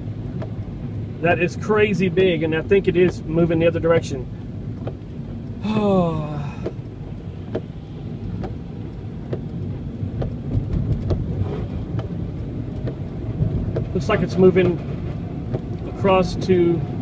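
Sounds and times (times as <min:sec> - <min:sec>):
road and rain noise: 0:00.0 - 0:17.0
windshield wiper ticking: 0:00.0 - 0:17.0
man exclaiming: 0:05.6 - 0:06.6.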